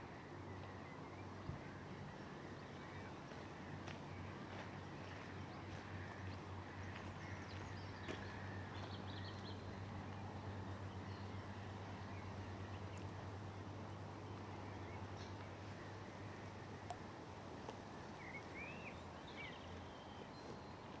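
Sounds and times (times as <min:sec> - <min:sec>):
faint clicks: 0:16.8 - 0:17.0
small birds chirping: 0:17.6 - 0:21.0.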